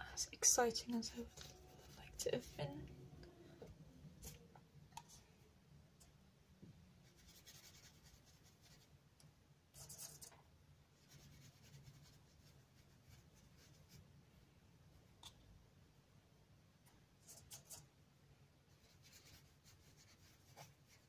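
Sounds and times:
paintbrush scratching on paper: 0:00.9 - 0:02.8, 0:07.0 - 0:08.9, 0:09.8 - 0:10.3, 0:11.0 - 0:14.0, 0:17.2 - 0:17.9, 0:18.7 - 0:21.0.

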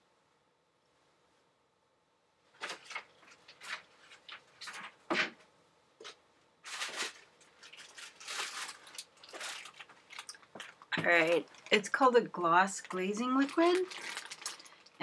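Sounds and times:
objects rustling and scraping: 0:02.5 - 0:11.8, 0:12.8 - 0:15.0.

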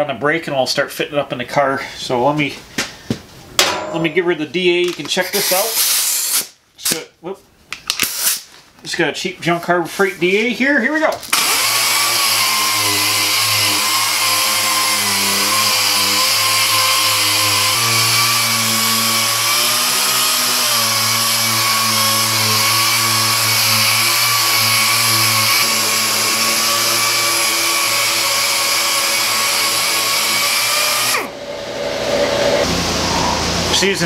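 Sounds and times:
air sander whirring on metal: 0:11.4 - 0:33.9
low hum: 0:31.1 - 0:34.0.

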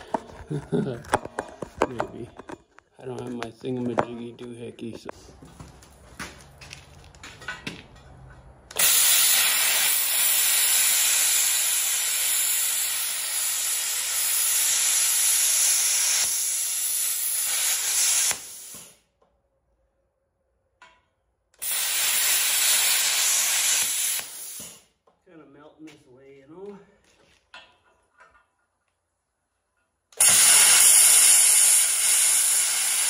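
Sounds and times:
plasma cutter hissing: 0:08.8 - 0:19.0, 0:21.6 - 0:24.8, 0:30.2 - 0:33.0.

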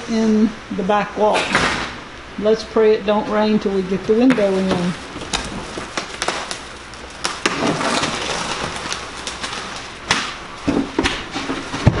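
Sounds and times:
wall section scraping: 0:07.4 - 0:10.0.

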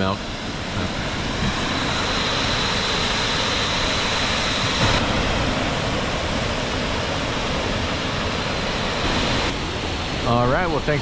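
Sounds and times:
water rushing over waterfall: 0:00.0 - 0:11.0.

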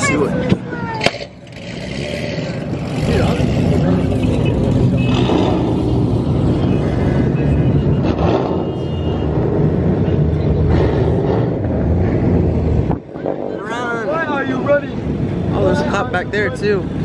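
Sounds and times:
vehicle engines droning: 0:00.0 - 0:17.0.

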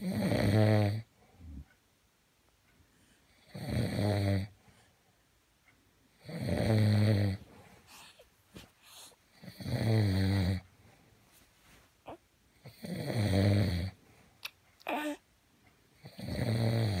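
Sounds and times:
man snoring: 0:00.0 - 0:01.1, 0:03.4 - 0:04.5, 0:06.2 - 0:07.4, 0:09.4 - 0:10.7, 0:12.7 - 0:14.0, 0:16.0 - 0:17.0.

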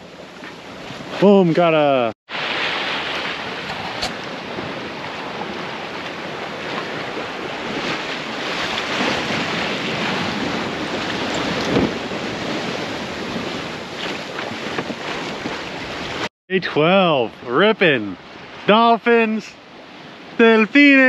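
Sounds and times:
water rushing along a hull: 0:00.0 - 0:21.0
wind buffeting microphone: 0:03.0 - 0:16.3.

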